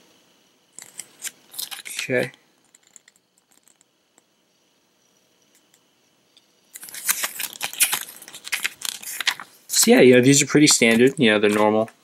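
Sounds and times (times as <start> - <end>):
pages flipping: 0.8 - 3.8, 6.8 - 11.9
paper booklet rustling: 6.8 - 11.9.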